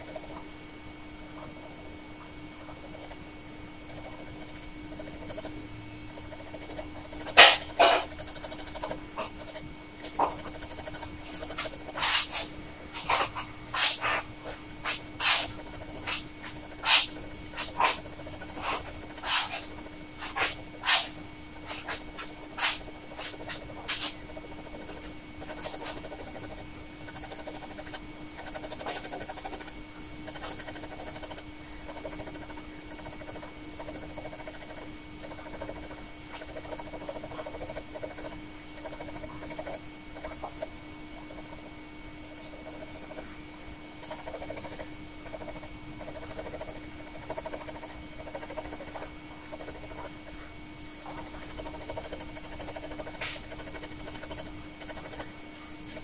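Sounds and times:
fountain pen scratching on paper: 0:06.2 - 0:40.6, 0:51.0 - 0:55.3.

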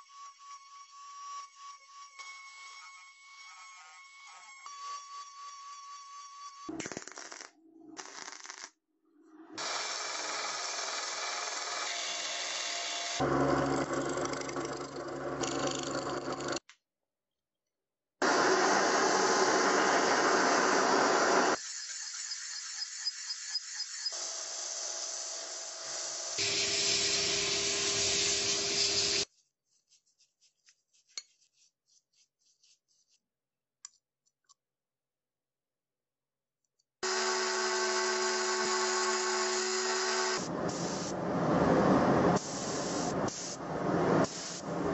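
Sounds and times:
belt grinder grinding metal: 0:09.6 - 0:16.6
faint brush strokes: 0:29.2 - 0:33.2.

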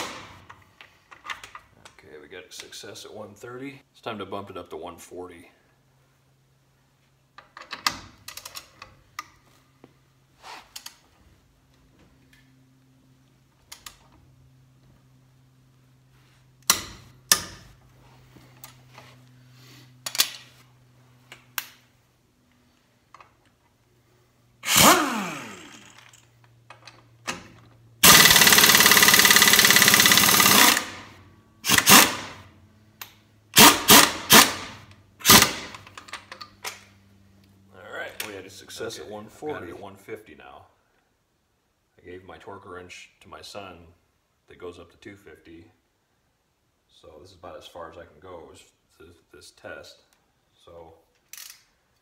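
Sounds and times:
air impact wrench hammering: 0:00.0 - 0:00.4, 0:24.6 - 0:26.0, 0:28.0 - 0:32.4, 0:33.6 - 0:35.8.

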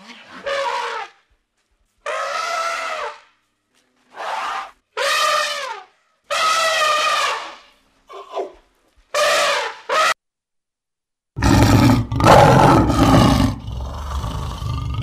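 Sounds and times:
elephant trumpeting: 0:00.0 - 0:01.2, 0:02.0 - 0:03.3, 0:04.1 - 0:08.5, 0:09.1 - 0:10.2.

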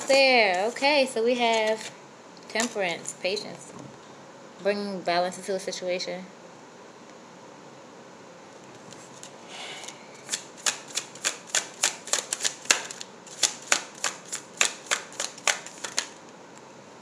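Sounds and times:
cards rustling: 0:00.0 - 0:03.2, 0:08.8 - 0:16.2
card snaps while shuffling: 0:08.9 - 0:16.2.

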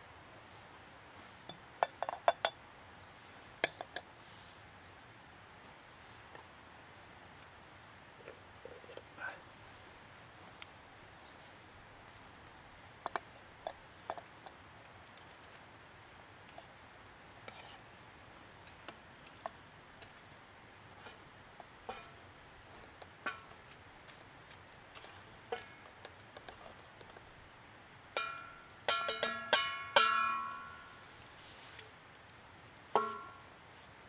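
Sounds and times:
wooden spatula scraping pan: 0:17.5 - 0:17.9, 0:21.9 - 0:24.2, 0:25.0 - 0:26.9
pan ringing against metal mug: 0:28.2 - 0:31.0, 0:33.0 - 0:33.4.

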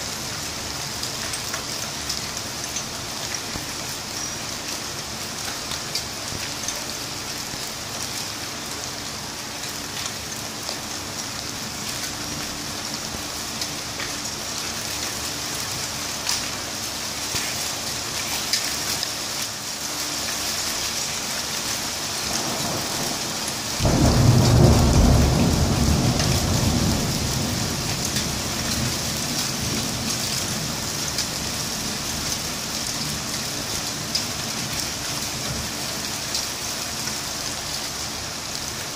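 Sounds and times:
heavy rain: 0:00.0 - 0:38.9
thunder clap and rumble: 0:22.3 - 0:30.8.

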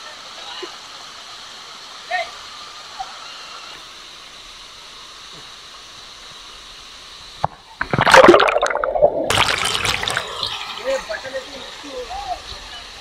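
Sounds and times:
water splashing against microphone: 0:07.8 - 0:10.9.

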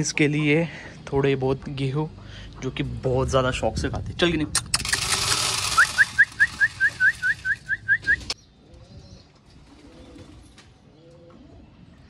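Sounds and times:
grains pattering into plastic bowl: 0:04.8 - 0:07.8
short rising chirps: 0:04.8 - 0:08.4.

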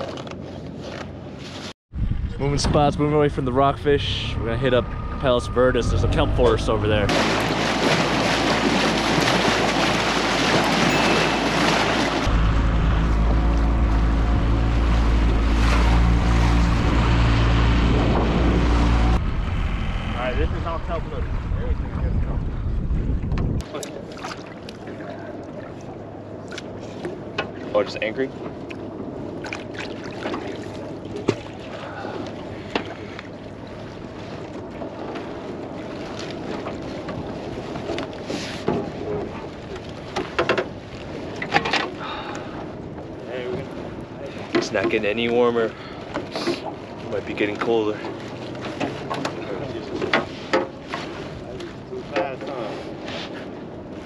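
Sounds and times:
outboard motor: 0:00.0 - 0:01.4, 0:02.8 - 0:54.0
wind: 0:00.0 - 0:54.0
wind buffeting microphone: 0:01.9 - 0:23.7
hull splashing through water: 0:03.5 - 0:21.3, 0:23.6 - 0:54.0.

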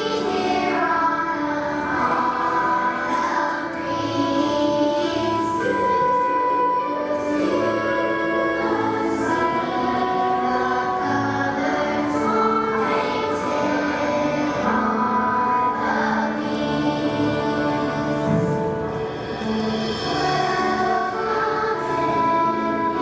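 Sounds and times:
children's choir singing: 0:00.0 - 0:23.0
instrumental accompaniment: 0:00.0 - 0:23.0.

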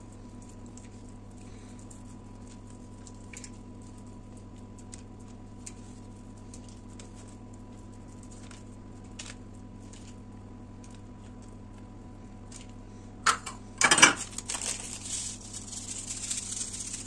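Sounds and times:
pastry brush dabbing dough: 0:00.0 - 0:12.8, 0:14.3 - 0:17.0
soft wet squishes: 0:00.0 - 0:13.0
steady electrical hum: 0:00.0 - 0:17.0.

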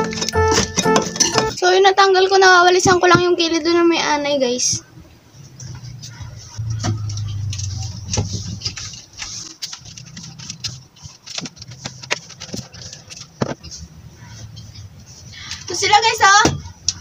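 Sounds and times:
broom scraping wood: 0:06.2 - 0:16.0
low hum: 0:06.6 - 0:08.8.

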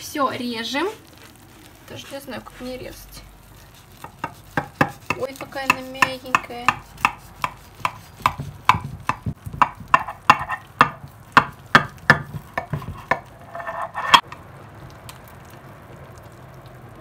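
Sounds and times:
knife tapping baking dish: 0:04.0 - 0:13.3.

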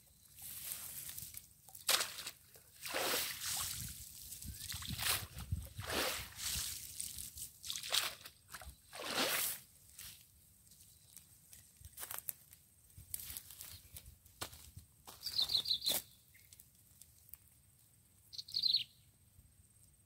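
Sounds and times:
water streaming off net: 0:01.9 - 0:04.0, 0:04.8 - 0:06.9, 0:08.9 - 0:09.6.

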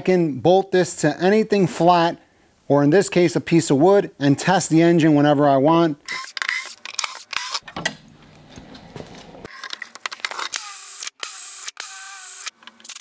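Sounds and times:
cordless drill boring into metal: 0:06.1 - 0:07.6, 0:10.3 - 0:13.0.

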